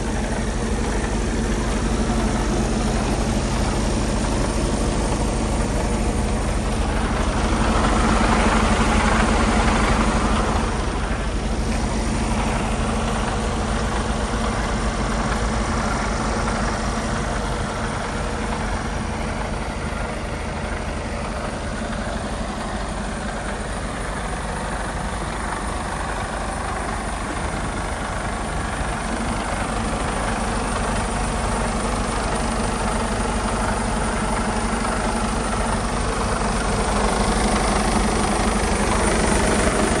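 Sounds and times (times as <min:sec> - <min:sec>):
diesel truck engine idling: 0:00.0 - 0:40.0.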